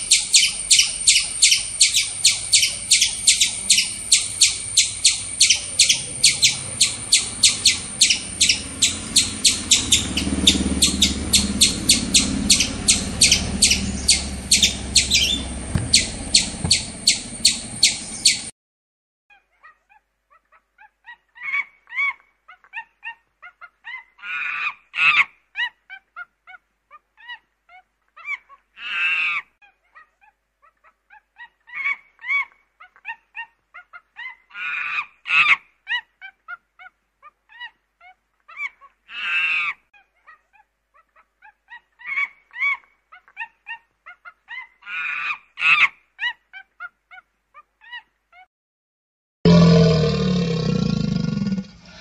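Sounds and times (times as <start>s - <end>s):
fowl calling: 0.0s - 18.5s
honking calls: 0.0s - 18.5s.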